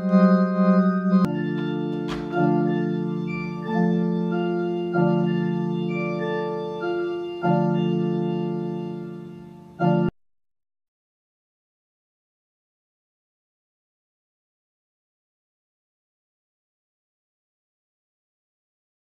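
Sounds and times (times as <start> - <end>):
electronic organ chords: 0.0 - 10.1.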